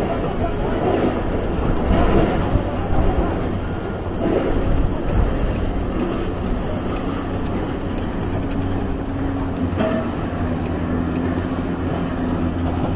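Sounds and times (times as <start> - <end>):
diesel machinery engine drone: 0.0 - 12.9
faint regular ticking: 4.6 - 11.5.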